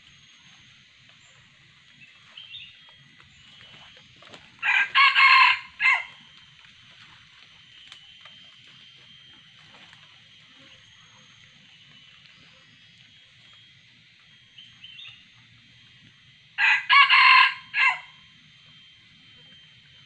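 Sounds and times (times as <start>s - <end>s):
rooster crowing: 4.6s - 6.3s, 16.6s - 18.3s.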